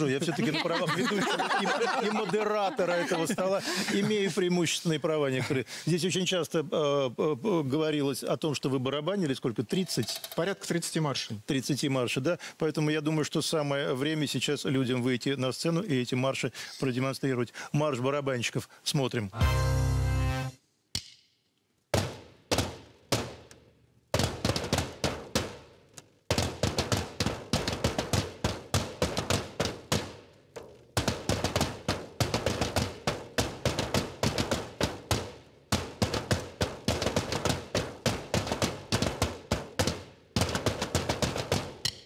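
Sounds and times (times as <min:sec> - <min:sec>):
side drums playing march: 0:26.3 - 0:30.2, 0:31.0 - 0:42.0.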